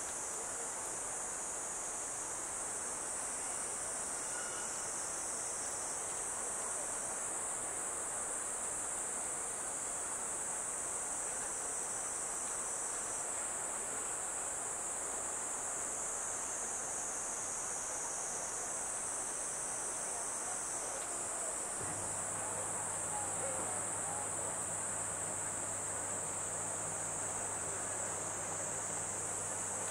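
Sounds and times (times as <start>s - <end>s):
low steady hum: 21.8s - 29.9s.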